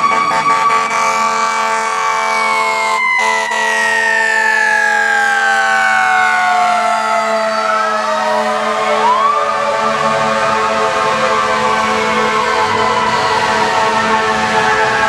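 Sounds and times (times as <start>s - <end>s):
fire truck siren winding: 0.0s - 10.6s.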